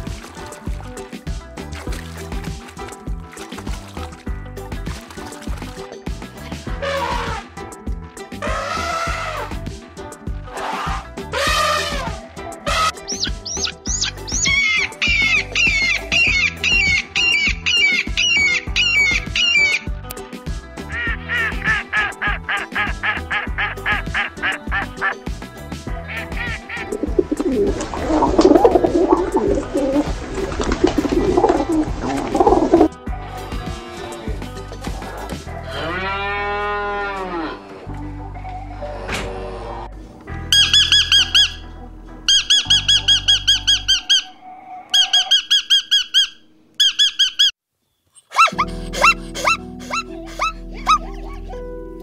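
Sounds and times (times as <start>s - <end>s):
duck quacking: 6.8s - 7.4s, 21.0s - 25.2s, 26.1s - 30.1s, 42.3s - 44.3s
zebra barking calls: 6.8s - 7.5s, 8.4s - 9.6s, 10.5s - 19.8s, 20.9s - 25.2s, 26.0s - 30.2s, 40.5s - 41.7s, 42.3s - 47.5s, 48.3s - 51.6s
doves cooing: 12.0s - 19.8s, 26.2s - 32.9s, 42.3s - 47.0s, 48.3s - 51.6s
lorikeet squeaky calls: 12.7s - 19.8s, 40.5s - 41.7s, 42.3s - 47.6s, 48.4s - 51.2s.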